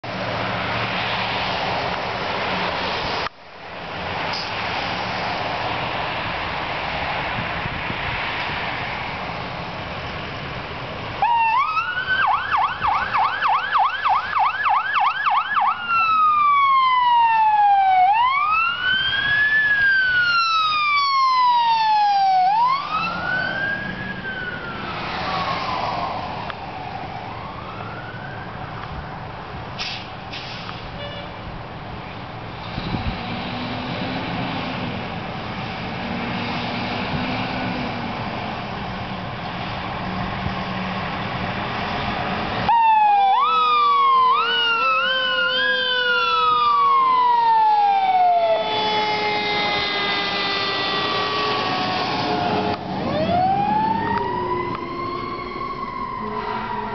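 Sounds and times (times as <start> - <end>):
fire engine drone: 0.0 - 56.9
ambulance siren: 11.2 - 29.3, 42.6 - 56.9.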